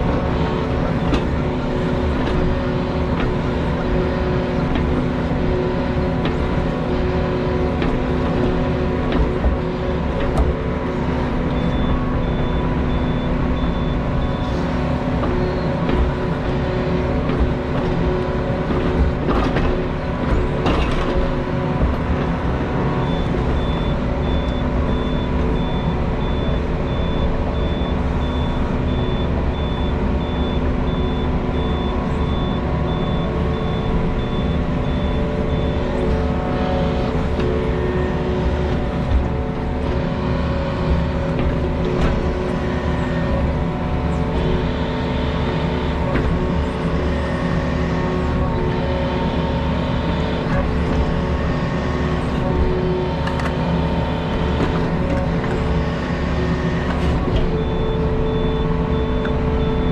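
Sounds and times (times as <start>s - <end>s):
skid steer engine running: 0.0s - 59.9s
backup alarm beeping: 8.4s - 16.7s, 23.0s - 40.2s.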